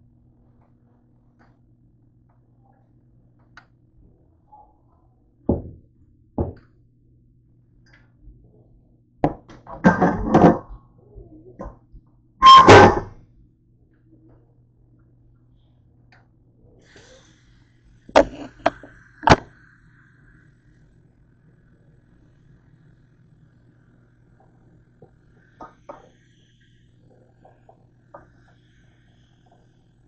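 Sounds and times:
kitchen items knocking and clattering: 0:09.7 - 0:10.7
kitchen items thunking: 0:09.7 - 0:10.7, 0:12.4 - 0:13.1.

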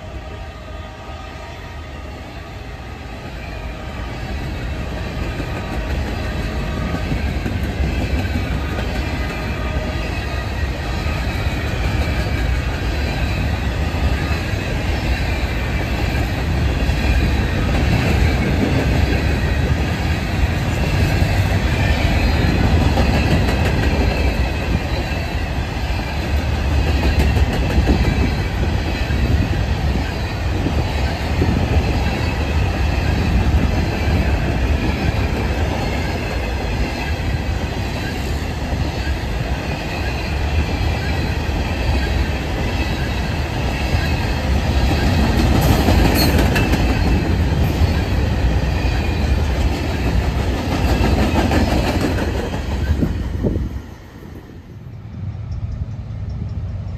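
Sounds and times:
train wheels rumbling and clacking: 0:03.0 - 0:56.9.

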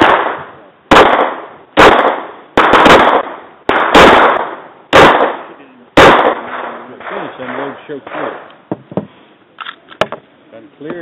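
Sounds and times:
pistol shots: 0:00.0 - 0:08.5.

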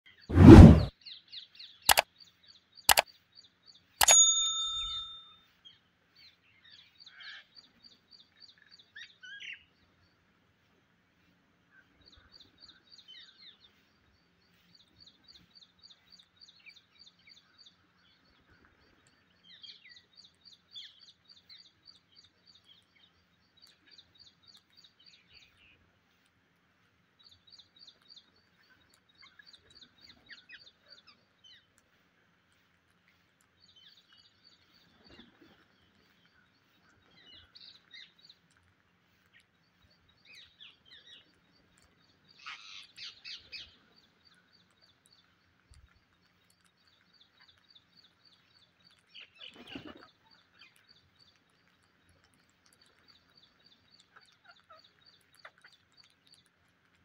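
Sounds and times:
parakeets chirping: 0:42.4 - 0:43.7.

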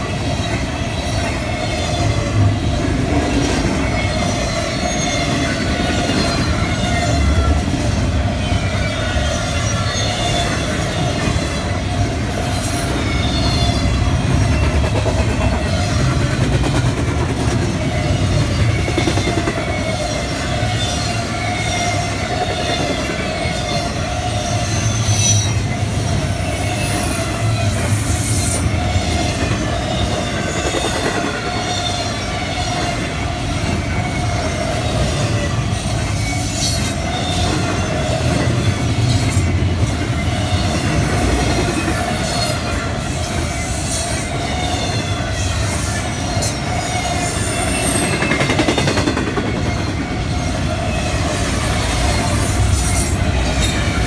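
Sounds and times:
high wheel squeal: 0:00.0 - 0:16.4, 0:17.6 - 0:54.0
steel wheels rumbling on rail: 0:00.0 - 0:54.0.

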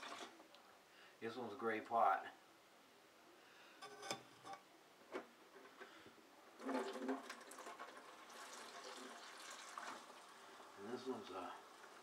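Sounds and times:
faucet water running into bowl: 0:06.6 - 0:12.0.

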